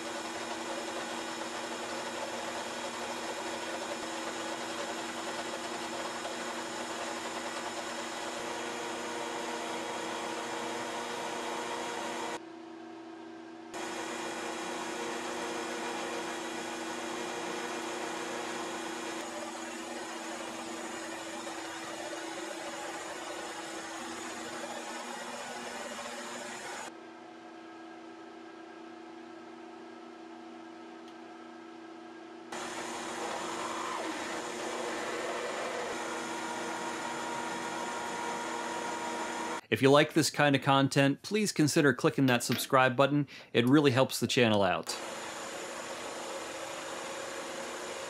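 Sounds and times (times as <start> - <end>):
metal lathe whining: 0.0 - 12.4, 13.8 - 26.9, 32.6 - 39.6, 45.0 - 48.0.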